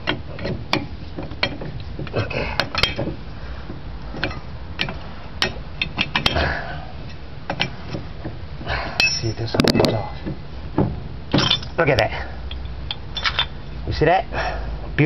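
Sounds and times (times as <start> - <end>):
metal clicks and clinks: 12.5 - 13.6.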